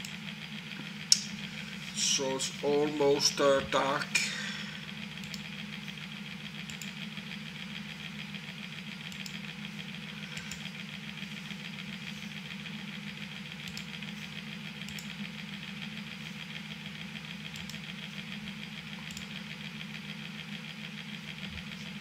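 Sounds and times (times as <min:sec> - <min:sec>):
small motor humming: 0:00.0 - 0:22.0
faint clicks: 0:06.6 - 0:07.0.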